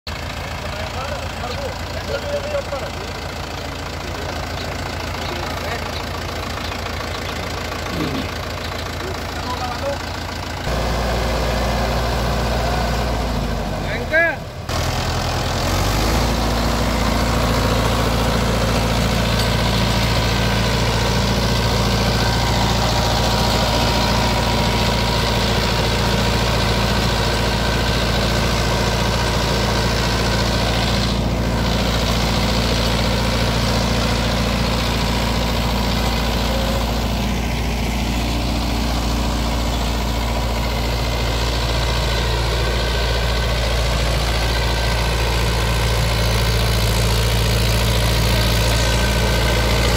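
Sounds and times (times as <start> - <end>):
tractor diesel engine running: 0.1 - 49.9
rotavator tilling soil: 10.7 - 49.9.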